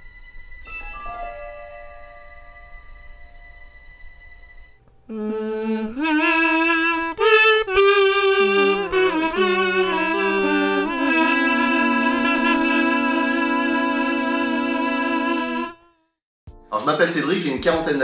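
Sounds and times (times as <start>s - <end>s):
theme music with held notes: 0.3s - 4.2s, 9.2s - 15.8s.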